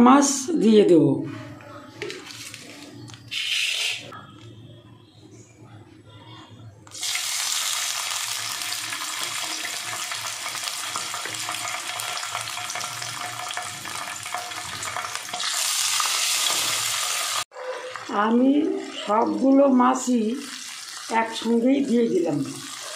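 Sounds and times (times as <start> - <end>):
fish sizzling in hot oil: 6.9 - 17.5, 20.4 - 21.4.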